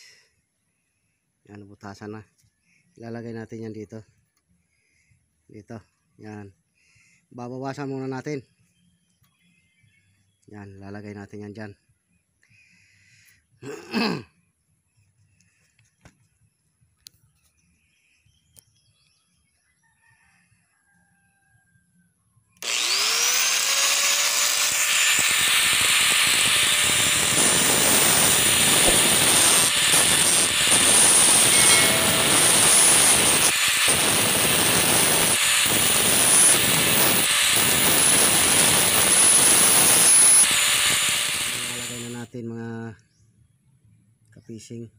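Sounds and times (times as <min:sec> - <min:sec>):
angle grinder grinding metal: 0:22.6 - 0:42.3.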